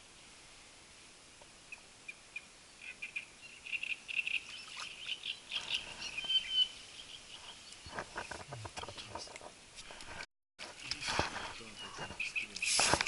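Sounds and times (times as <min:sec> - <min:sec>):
small birds chirping: 0:01.7 - 0:09.3, 0:10.8 - 0:13.0.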